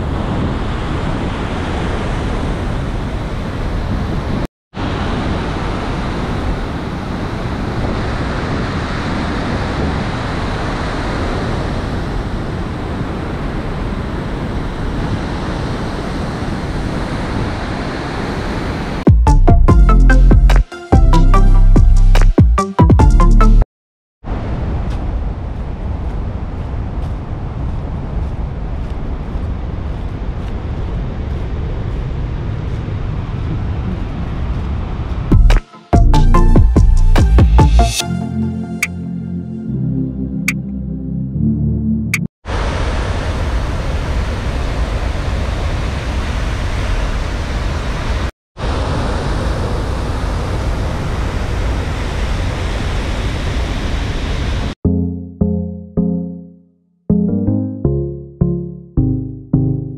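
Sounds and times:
wind buffeting microphone: 24.3s - 35.6s.

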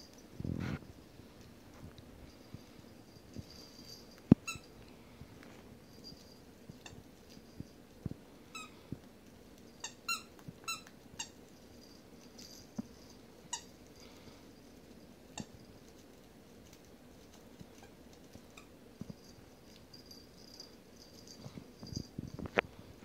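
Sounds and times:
toy squeaks: 4.4s - 4.7s, 9.8s - 11.4s.

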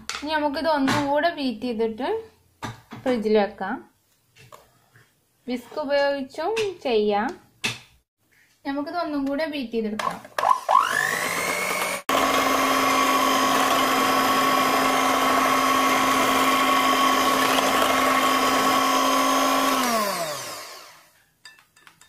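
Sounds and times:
electric hand mixer whining: 10.4s - 21.1s.

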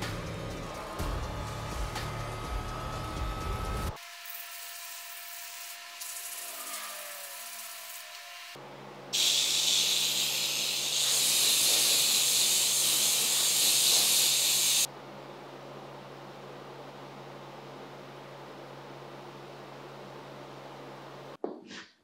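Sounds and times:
loud steady hiss: 9.2s - 14.9s.

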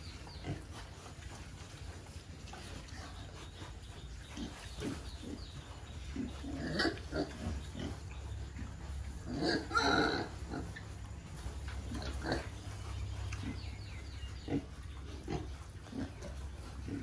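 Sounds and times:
piglets grunting: 0.0s - 0.8s, 4.2s - 11.0s, 11.8s - 17.0s.

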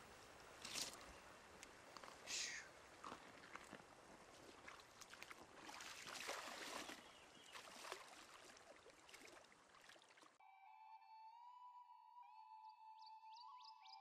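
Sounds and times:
river water splashing: 0.0s - 10.4s
music: 10.4s - 14.0s.

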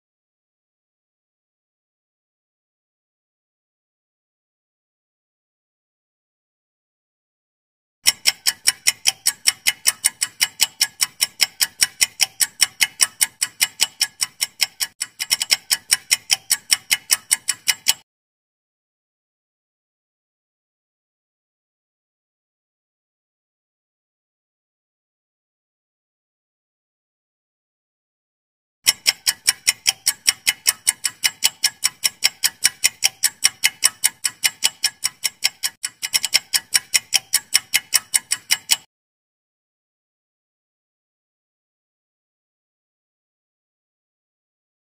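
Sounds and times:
fast clock ticking: 8.0s - 18.0s, 28.8s - 38.9s.

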